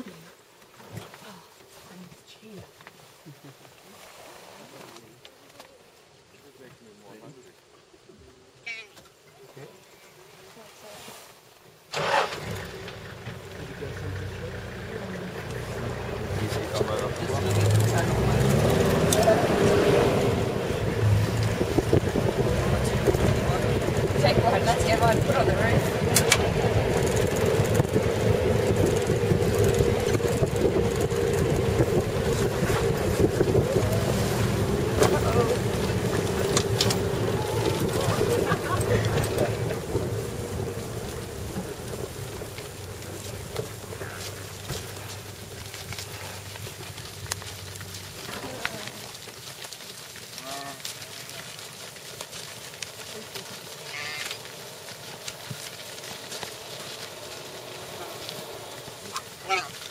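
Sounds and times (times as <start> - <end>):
vehicle engine droning: 12.0 - 59.9
wind buffeting microphone: 15.5 - 45.7
wildebeest calling: 53.8 - 54.4, 59.1 - 59.9.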